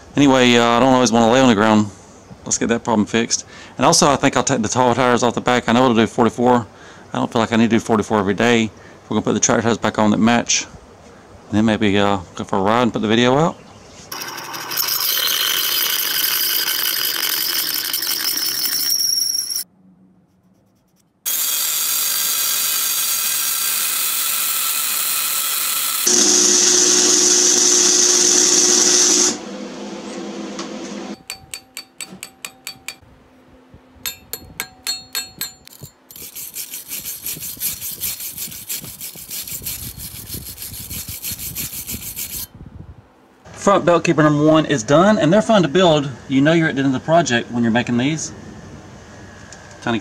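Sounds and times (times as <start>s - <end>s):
hand file stroking steel: 14.1s - 18.9s, 20.6s - 26.1s, 31.2s - 33.0s, 34.1s - 42.5s
drill boring through steel: 14.1s - 19.6s, 21.3s - 29.4s, 34.1s - 42.5s
electric welding: 21.3s - 29.4s.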